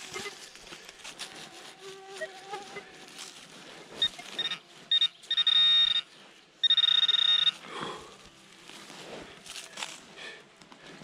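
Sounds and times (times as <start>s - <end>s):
short high beeps: 4.0s - 7.6s.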